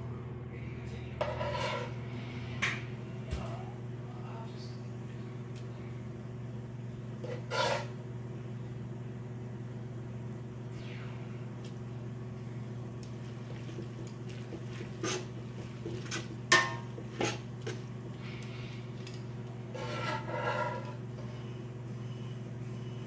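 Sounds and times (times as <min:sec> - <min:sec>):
low steady hum: 0:00.0 - 0:23.0
utensil scraping steel pot: 0:01.2 - 0:02.0, 0:07.2 - 0:08.0, 0:13.5 - 0:17.9, 0:19.7 - 0:21.0.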